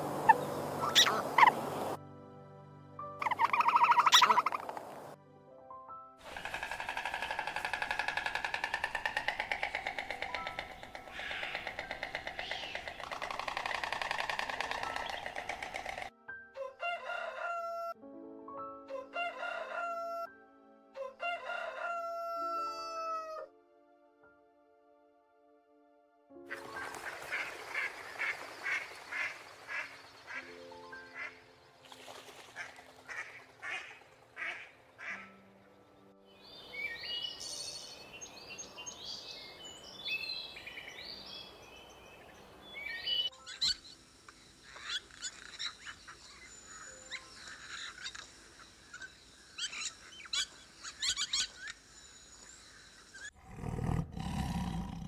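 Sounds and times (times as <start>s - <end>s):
soft background music: 0.0s - 52.8s
tiger roaring: 53.4s - 55.0s.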